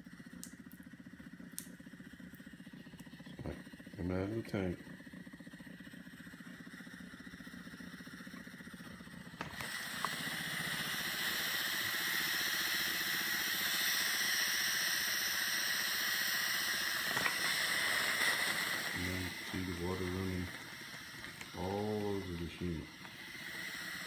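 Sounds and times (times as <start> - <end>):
steam mop pump buzzing: 0.0 - 24.0
steam hissing: 9.4 - 24.0.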